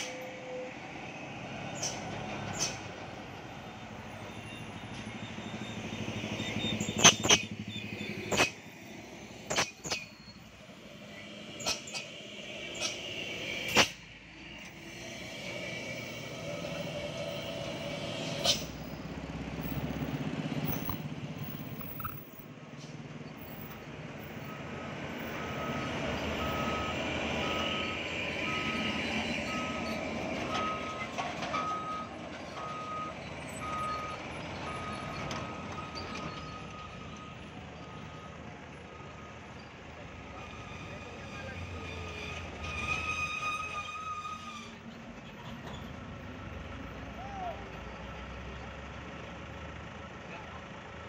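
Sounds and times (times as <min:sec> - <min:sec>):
diesel trucks moving slowly: 0:00.0 - 0:51.0
reversing alarm beeping: 0:20.7 - 0:22.4, 0:24.3 - 0:39.6.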